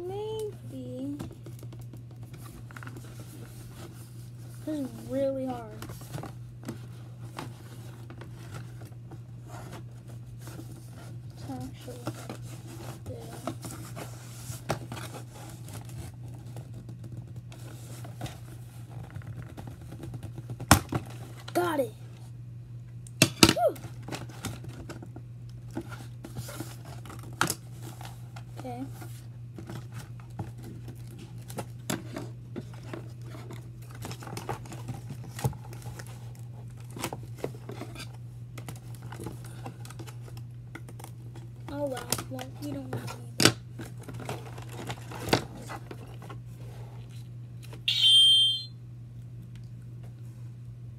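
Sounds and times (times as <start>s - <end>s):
scratching and rustling on box: 1.2s - 21.5s, 25.7s - 40.3s, 41.3s - 47.3s
hands handling plastic packaging: 23.8s - 46.4s.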